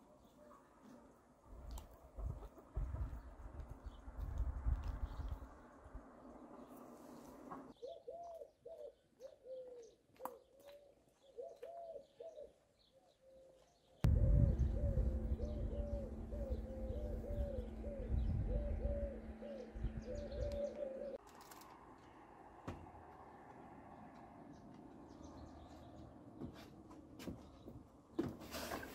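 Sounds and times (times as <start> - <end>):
small birds chirping: 0.0 - 21.2
dove cooing: 7.8 - 12.6, 14.1 - 21.2
low rumbling noise: 14.0 - 21.2
steady low hum: 14.0 - 21.2.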